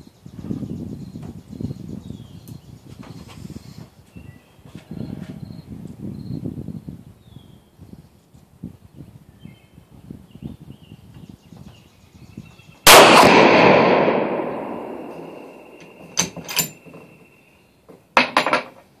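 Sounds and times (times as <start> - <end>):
rifle shot echoing: 12.9 - 16.3.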